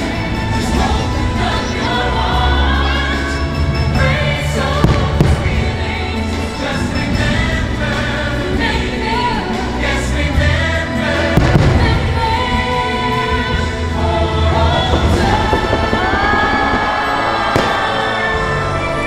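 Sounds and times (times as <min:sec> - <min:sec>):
choir singing show music: 0:00.0 - 0:19.0
fireworks banging and crackling: 0:04.8 - 0:06.4, 0:11.3 - 0:12.7, 0:13.3 - 0:19.0.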